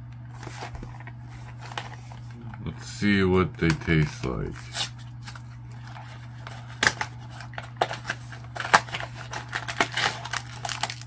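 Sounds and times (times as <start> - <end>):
cardboard box tearing: 8.0 - 11.0.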